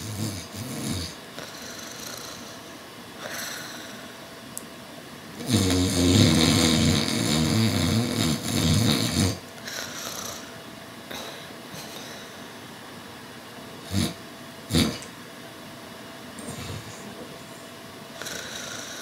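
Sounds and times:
person snoring: 0:00.0 - 0:04.2, 0:05.4 - 0:10.5, 0:13.9 - 0:15.1, 0:18.2 - 0:19.0.

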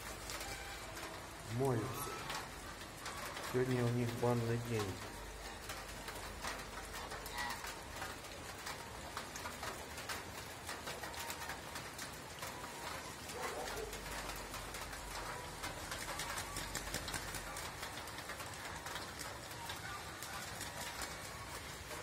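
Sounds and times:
geese splashing in water: 0:06.8 - 0:09.2, 0:12.4 - 0:22.0
soft goose calls: 0:07.3 - 0:07.8.

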